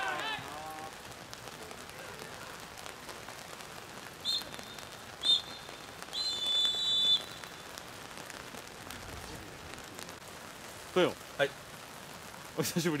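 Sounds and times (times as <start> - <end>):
referee's whistle blasts: 4.2 - 7.6.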